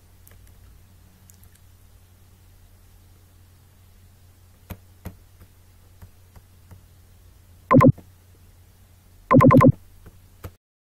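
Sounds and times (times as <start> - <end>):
electronic buzzing tones: 7.7 - 8.0, 9.3 - 9.8.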